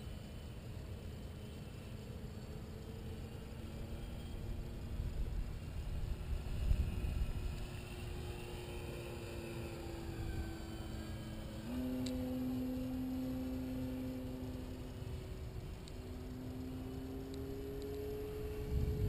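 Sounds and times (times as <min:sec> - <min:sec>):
model plane motor drone: 0:00.0 - 0:19.0
wind rumbling on microphone: 0:04.9 - 0:08.2, 0:16.8 - 0:19.0.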